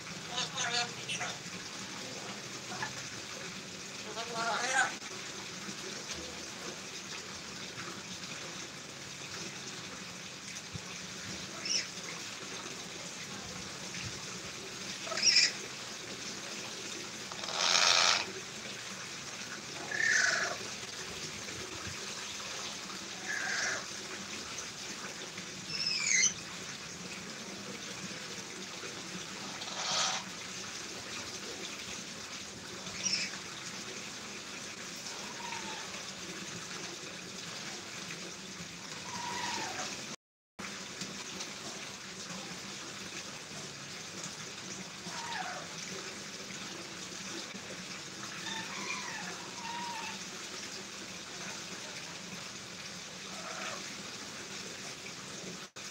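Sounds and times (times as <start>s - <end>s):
parrot squawks and whistles: 15.1s - 15.6s, 25.7s - 26.4s.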